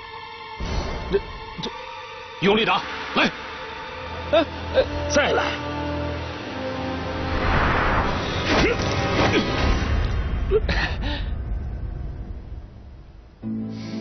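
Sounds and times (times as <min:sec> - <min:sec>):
dramatic background music: 0:00.0 - 0:14.0
whoosh: 0:07.1 - 0:08.6.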